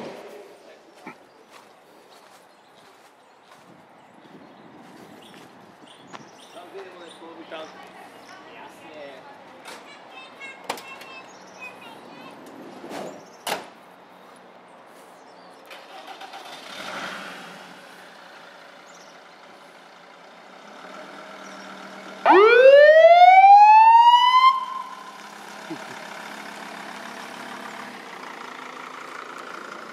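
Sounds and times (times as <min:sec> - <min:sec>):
ambulance siren wail: 0:22.2 - 0:25.2
engine running: 0:24.4 - 0:29.9.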